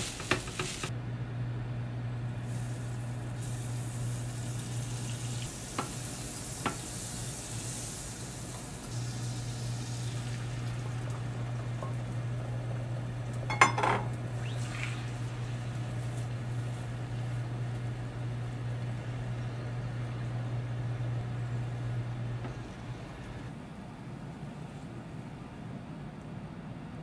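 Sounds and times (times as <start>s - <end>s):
butter sizzling in a frying pan: 0.0s - 0.9s, 2.4s - 12.3s
hob humming: 0.0s - 23.6s
utensils knocking on pan: 13.5s - 14.1s.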